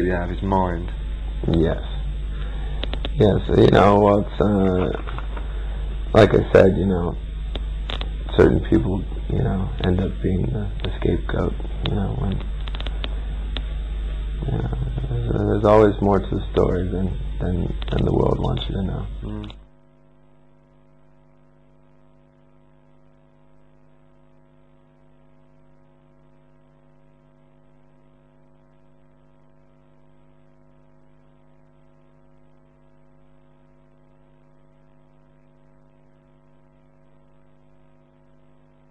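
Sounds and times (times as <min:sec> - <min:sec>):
faint hiss: 0:00.0 - 0:19.6
electrical mains hum: 0:00.0 - 0:38.9.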